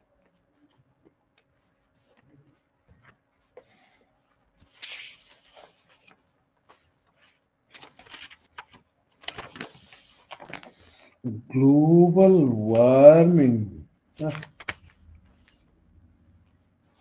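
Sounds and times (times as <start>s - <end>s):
rustling handling noise: 0.2s - 11.2s.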